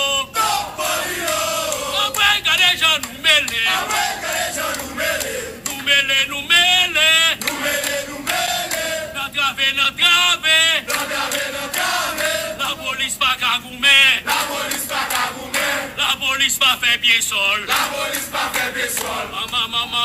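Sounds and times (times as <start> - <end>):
man chanting loudly: 1.7 - 8.2, 8.8 - 11.0, 12.2 - 14.3.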